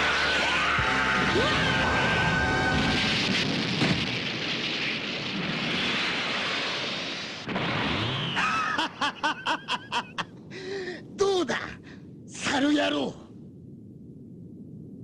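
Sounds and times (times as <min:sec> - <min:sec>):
rumbling blast effects: 0:00.8 - 0:08.8.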